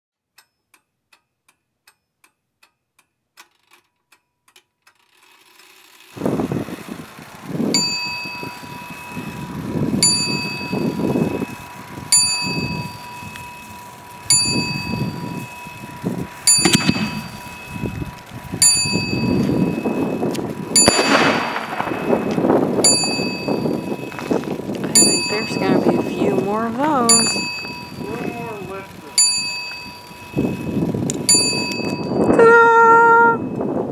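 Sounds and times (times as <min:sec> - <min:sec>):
faint regular ticks: 0:00.3 - 0:06.2, 0:10.6 - 0:20.8, 0:21.6 - 0:32.0
fireworks rushing noise: 0:06.0 - 0:31.8
bell-like ring: 0:10.0 - 0:15.9, 0:16.5 - 0:18.0, 0:21.8 - 0:24.2, 0:25.0 - 0:26.0, 0:27.1 - 0:28.2, 0:29.1 - 0:30.7, 0:31.3 - 0:32.6.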